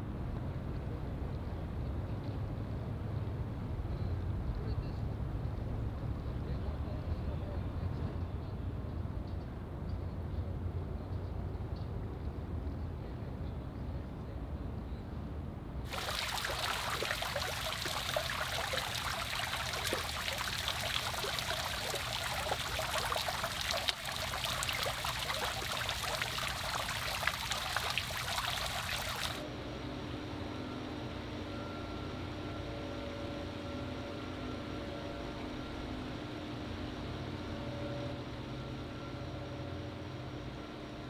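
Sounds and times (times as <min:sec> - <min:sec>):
fountain water splashing: 0:15.9 - 0:29.4
steady low hum: 0:15.9 - 0:41.0.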